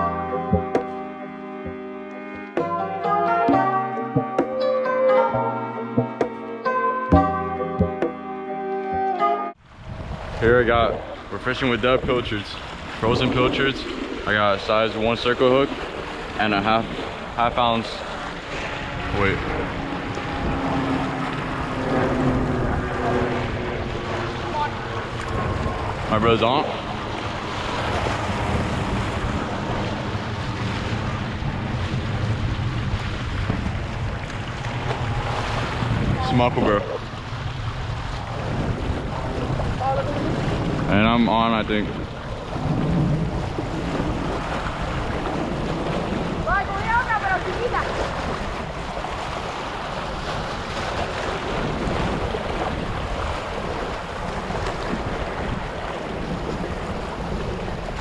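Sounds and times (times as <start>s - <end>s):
wind buffeting microphone: 9.6s - 58.0s
waves splashing against rocks: 22.8s - 58.0s.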